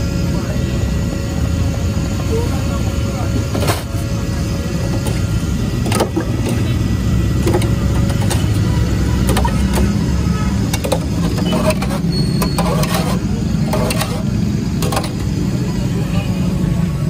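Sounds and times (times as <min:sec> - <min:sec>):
low rumble of road traffic: 0:00.0 - 0:17.0.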